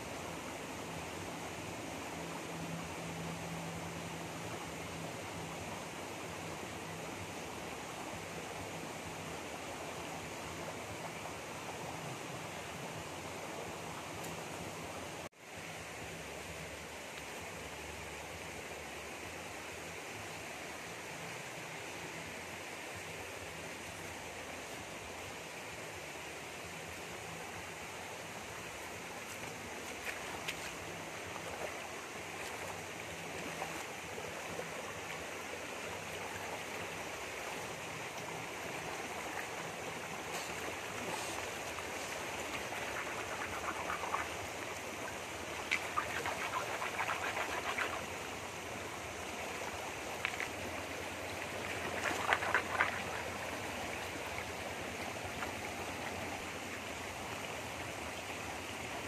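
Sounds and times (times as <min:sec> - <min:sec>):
stream rushing over stones: 0:00.0 - 0:59.0
hands splashing in water: 0:45.6 - 0:48.1, 0:51.7 - 0:53.5.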